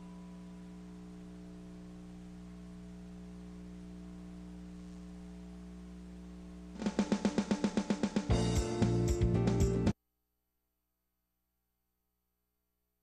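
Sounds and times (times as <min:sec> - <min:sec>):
electrical hum: 0:00.0 - 0:10.0
music with fast pulsing beat: 0:06.7 - 0:10.0.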